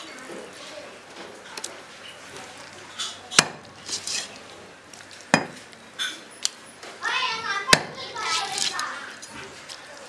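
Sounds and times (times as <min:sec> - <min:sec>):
metal kitchenware knocks: 0:05.4 - 0:05.6.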